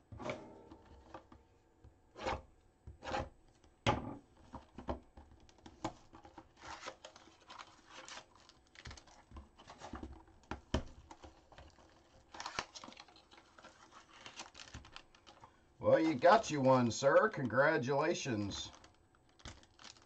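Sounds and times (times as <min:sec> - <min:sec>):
card box wrapping rustling and tearing: 0:05.6 - 0:10.3, 0:10.9 - 0:15.4, 0:18.7 - 0:20.0.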